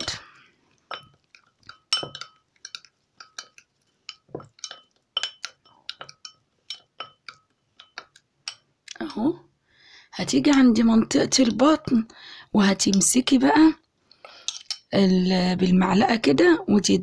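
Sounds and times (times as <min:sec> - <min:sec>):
metal spoon clinking on ceramic bowl: 0:00.9 - 0:08.7, 0:14.5 - 0:14.9.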